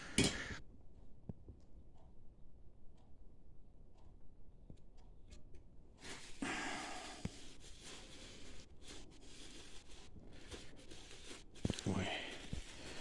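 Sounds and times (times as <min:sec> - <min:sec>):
cloth rag rustling: 0:06.0 - 0:13.0.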